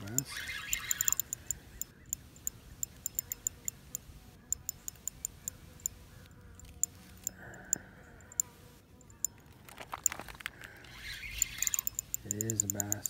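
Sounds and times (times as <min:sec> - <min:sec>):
fishing reel clicking: 0:00.0 - 0:06.0, 0:10.0 - 0:13.0.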